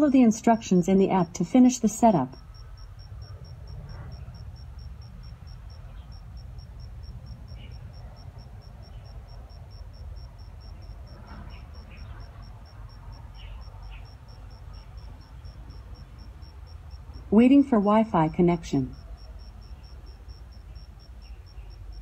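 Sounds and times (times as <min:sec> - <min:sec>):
cricket chirping: 0:00.0 - 0:22.0
steady low rumble: 0:00.0 - 0:22.0.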